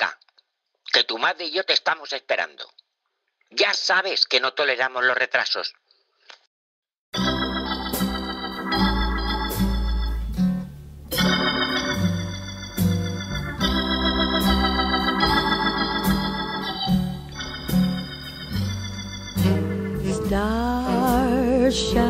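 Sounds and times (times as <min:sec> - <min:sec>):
bass line: 0:07.2 - 0:22.0
organ-like keyboard chords: 0:07.2 - 0:22.0.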